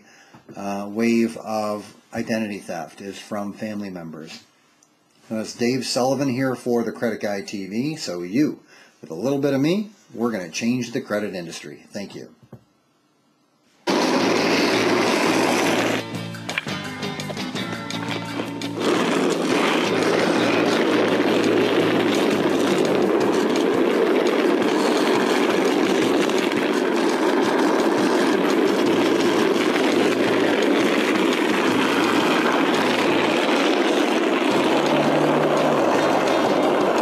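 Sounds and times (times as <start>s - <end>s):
skateboard rolling on asphalt: 13.9s - 37.0s.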